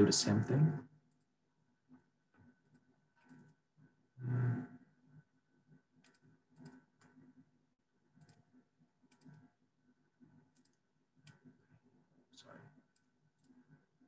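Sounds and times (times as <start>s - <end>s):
computer mouse clicks: 2.6s - 3.6s, 6.0s - 7.4s, 8.1s - 9.5s, 10.2s - 11.8s, 12.8s - 13.8s.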